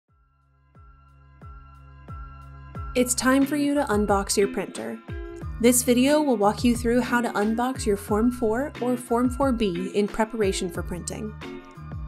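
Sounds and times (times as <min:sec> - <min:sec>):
deep kick drum: 0:06.6 - 0:07.1.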